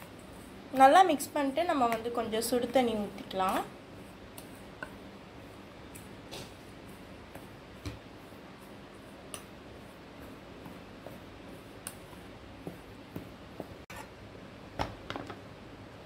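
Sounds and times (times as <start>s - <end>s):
spoon scraping flour in bowl: 13.7s - 14.2s.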